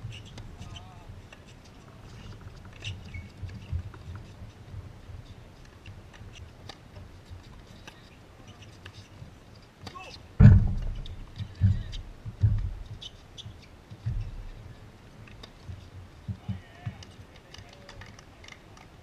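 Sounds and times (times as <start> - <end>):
loud thump: 10.4 - 12.8
wind rumble on microphone: 10.4 - 13.0.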